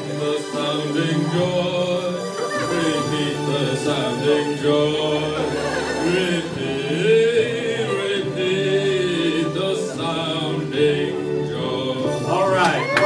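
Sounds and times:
man singing into a microphone: 0.0s - 12.9s.

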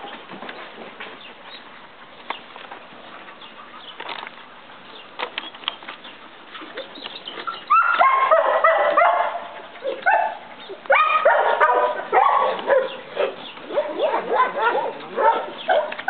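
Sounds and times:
faint chirps and clicks: 3.4s - 7.7s
dog yipping: 7.4s - 16.0s.

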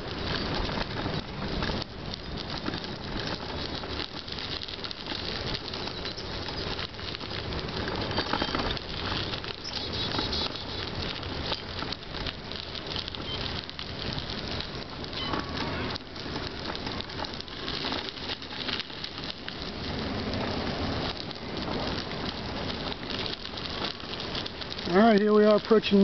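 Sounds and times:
bicycle tyres crunching on gravel: 0.0s - 26.0s
bike rattling: 0.0s - 26.0s.

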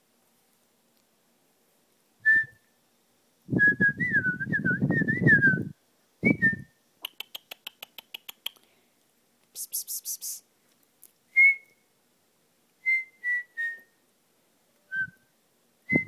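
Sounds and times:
person whistling: 2.3s - 2.6s, 3.6s - 6.7s, 11.4s - 11.7s, 12.9s - 13.9s, 14.9s - 15.2s.

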